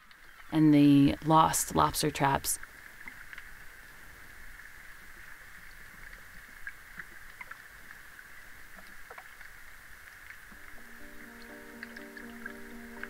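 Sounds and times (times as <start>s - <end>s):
faint clicks and ticks: 5.5s - 13.0s
music: 10.6s - 13.0s.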